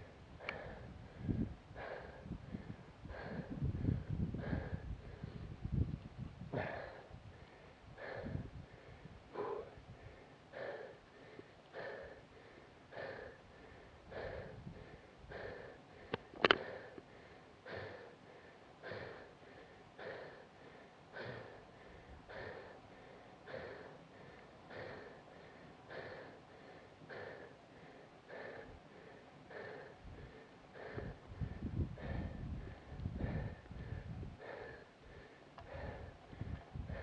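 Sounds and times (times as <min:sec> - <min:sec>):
heavy rhythmic breathing: 0:00.0 - 0:05.6, 0:06.5 - 0:37.0
sharp clicks: 0:16.1 - 0:16.7.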